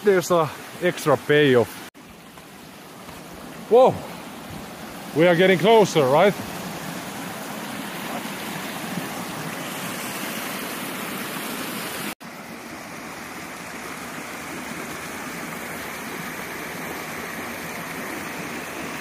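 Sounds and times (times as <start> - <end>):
stream rushing over rocks: 0.0 - 19.0
waterfall pouring into pool: 5.1 - 19.0.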